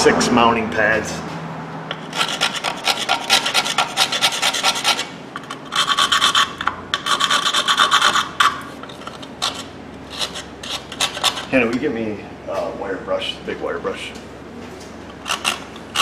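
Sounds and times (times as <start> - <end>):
hand scraping rust off steel: 1.9 - 11.8, 15.1 - 16.0.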